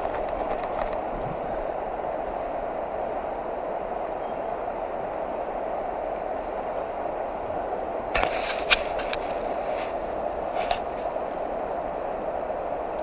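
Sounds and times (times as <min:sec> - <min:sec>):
river water rushing: 0:00.0 - 0:13.0.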